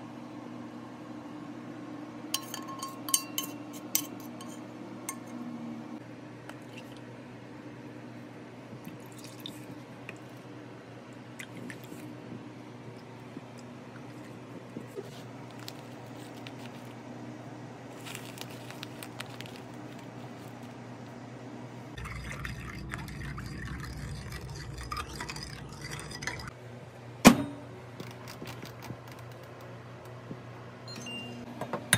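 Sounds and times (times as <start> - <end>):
milk pouring into bowl: 22.0 - 26.5.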